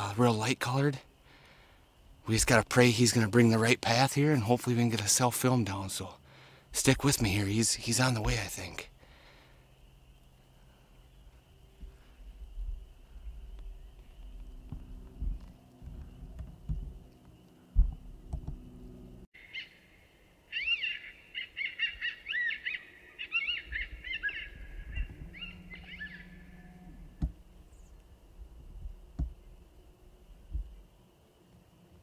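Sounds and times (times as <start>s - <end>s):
handling thumps: 13.9s - 18.7s, 28.7s - 29.6s
electronic coyote pup yelps: 20.5s - 27.1s.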